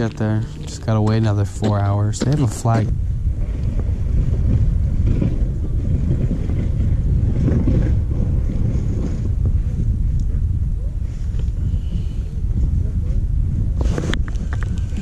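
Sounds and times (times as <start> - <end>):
wind buffeting microphone: 0.0 - 15.0.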